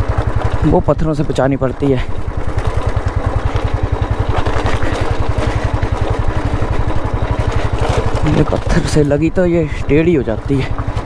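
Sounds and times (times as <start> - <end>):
motorcycle engine at low revs: 0.0 - 11.0
tyres clattering over stones: 2.6 - 9.6.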